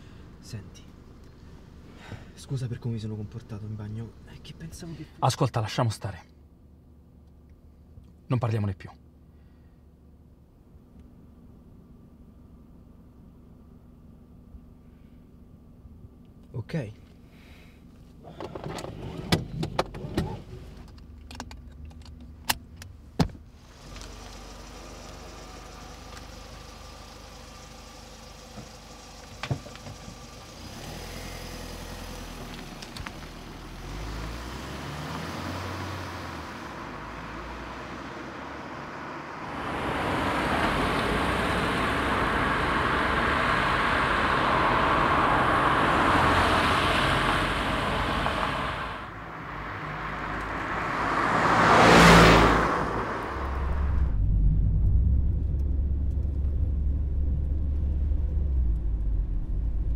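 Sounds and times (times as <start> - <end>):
road noise: 0.0 - 59.9
car engine running: 17.0 - 59.9
sharp clicks and clunks: 18.4 - 23.4.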